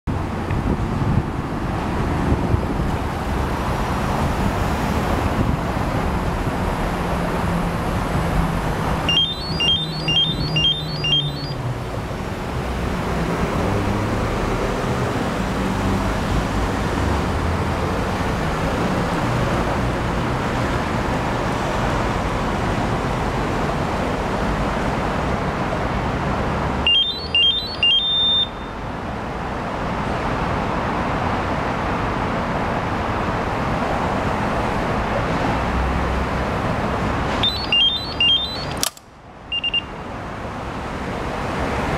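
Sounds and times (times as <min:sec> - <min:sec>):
street traffic noise: 0:00.0 - 0:41.9
short high electronic beeps: 0:09.1 - 0:11.6, 0:26.9 - 0:28.8, 0:37.4 - 0:38.8, 0:39.5 - 0:39.9.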